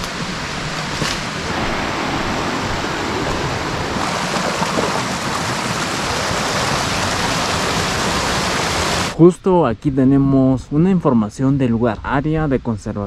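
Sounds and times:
stream water rushing: 0.0 - 9.2.

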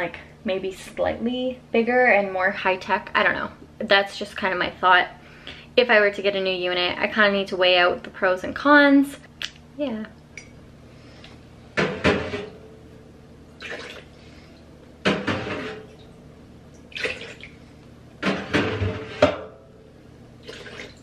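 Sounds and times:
water poured into plastic basin: 13.6 - 14.1, 16.9 - 17.6, 20.4 - 21.0.

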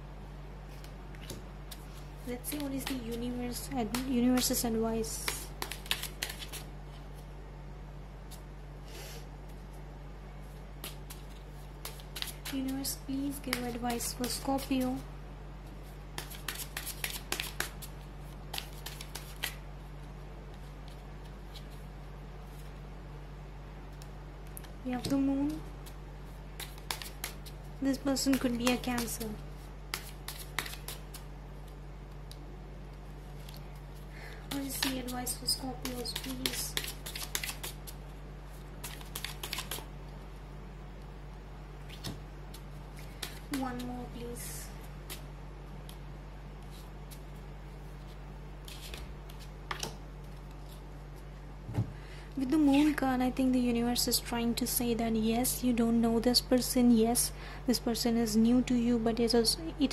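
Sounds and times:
cards shuffled by hand: 0.7 - 7.2, 10.5 - 15.0, 15.8 - 19.6, 24.6 - 32.4, 33.2 - 39.9, 41.8 - 44.1, 45.0 - 46.0, 46.6 - 50.9.

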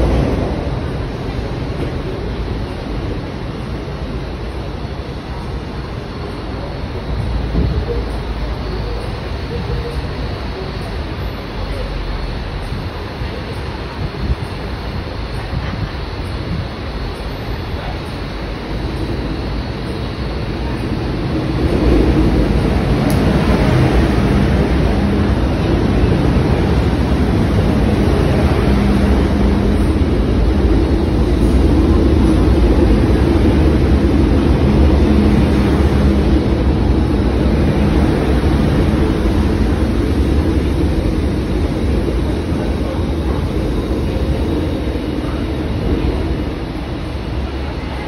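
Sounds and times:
train low hum: 0.0 - 48.0
train wheel and track noise: 0.0 - 48.0.

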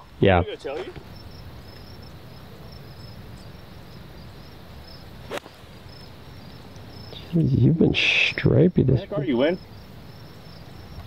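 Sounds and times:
insect chirring: 0.0 - 11.0
golf iron striking ball in sand: 5.2 - 5.8.

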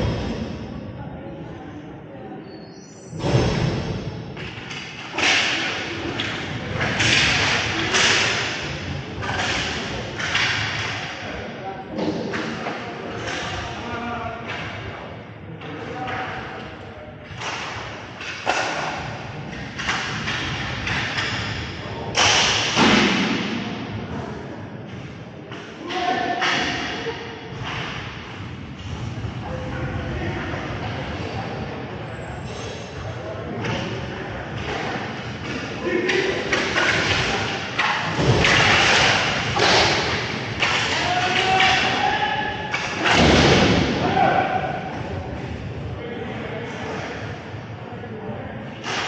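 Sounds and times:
hockey sticks and puck knocking: 4.4 - 11.2, 17.4 - 23.5, 34.6 - 44.2.

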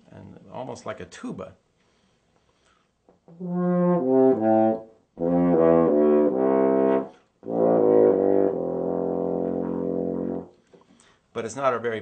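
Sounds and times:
french horn low notes: 3.3 - 10.6.

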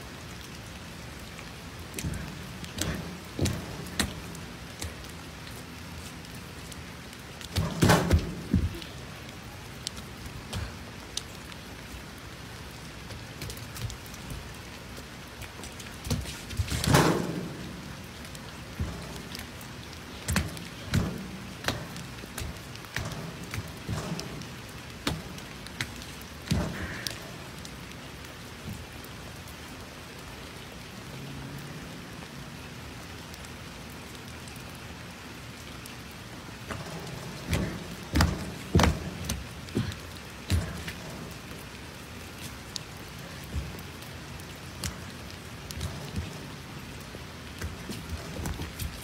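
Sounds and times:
rain on a wooden deck: 0.0 - 49.0
knocks and thumps on boards: 1.9 - 5.0, 7.4 - 8.8, 20.2 - 27.2, 36.7 - 41.5.

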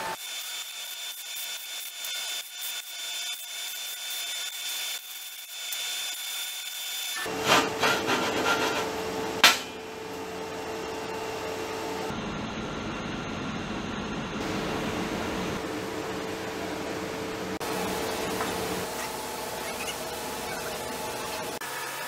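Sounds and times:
sander rubbing steel plate: 7.2 - 9.6.

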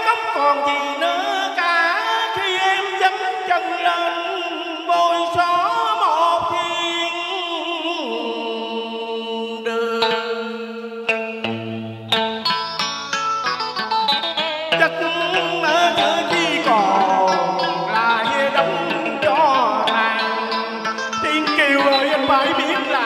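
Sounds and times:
wavering stage music melody: 9.8 - 23.0.

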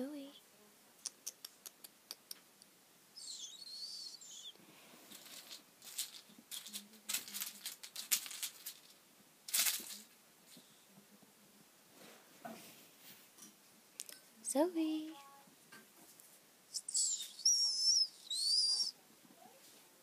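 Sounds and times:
kitten paws scrambling: 3.2 - 10.7, 16.1 - 19.9.

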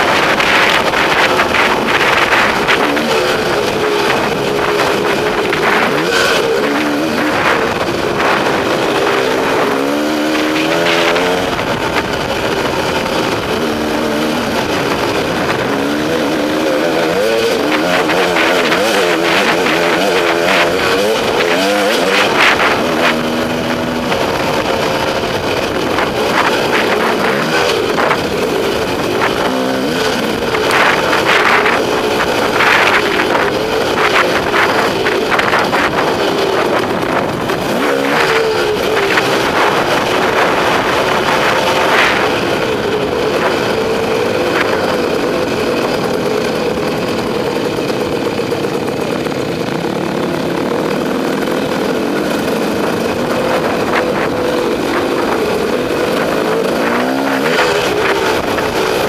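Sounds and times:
two-stroke motorcycle engine revving: 0.0 - 59.0
wind rush: 0.0 - 59.0.

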